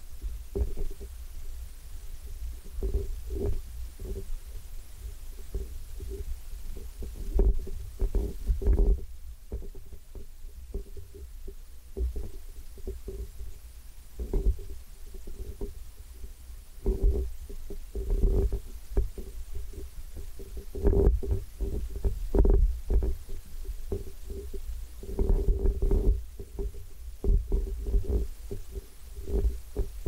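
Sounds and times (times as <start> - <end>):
faint steady hum: 0.0 - 30.0
microphone handling thumps: 18.0 - 30.0.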